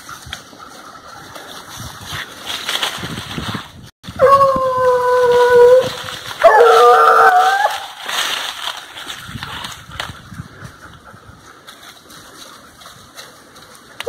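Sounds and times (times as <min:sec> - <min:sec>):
footsteps in dry leaves: 0:00.0 - 0:10.7, 0:11.4 - 0:14.0
hounds baying: 0:04.2 - 0:08.0.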